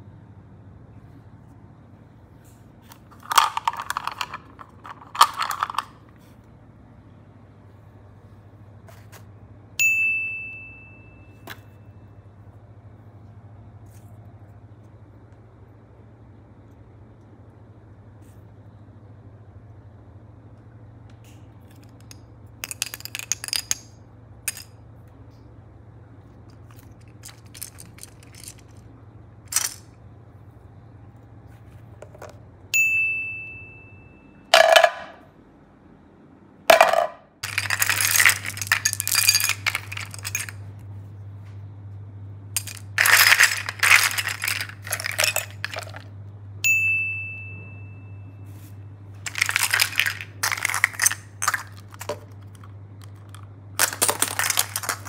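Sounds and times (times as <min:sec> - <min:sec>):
toys and marbles clattering: 0:02.9 - 0:06.2, 0:21.6 - 0:24.8, 0:26.5 - 0:28.9, 0:29.5 - 0:30.0, 0:34.6 - 0:35.2, 0:36.7 - 0:40.7, 0:42.6 - 0:46.1, 0:49.2 - 0:55.0.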